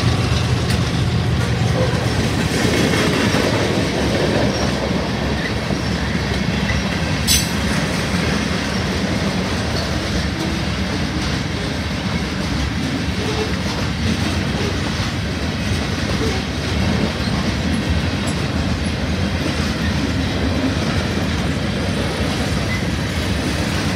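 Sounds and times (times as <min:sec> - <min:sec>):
train wheels rumbling on rails: 0:00.0 - 0:23.9.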